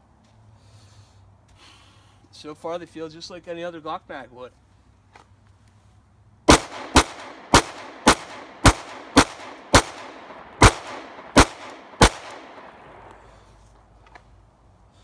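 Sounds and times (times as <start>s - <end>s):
pistol shots with echo: 6.5s - 13.2s.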